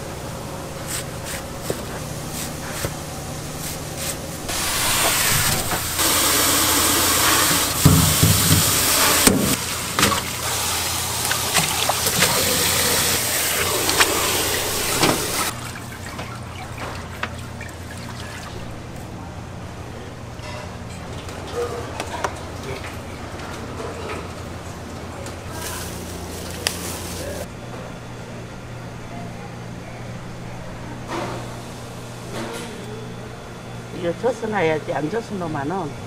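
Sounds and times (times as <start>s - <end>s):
tap water running hard: 4.5s - 18.7s.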